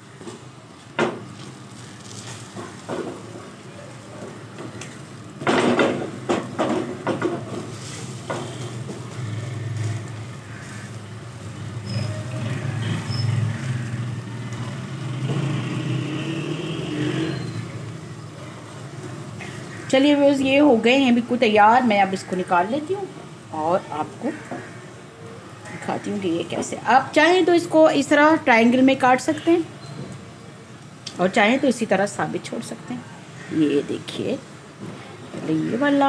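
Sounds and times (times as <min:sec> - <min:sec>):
toast sizzling in oil: 0:00.0 - 0:36.0
spatula knocking and scraping pan: 0:05.4 - 0:09.4.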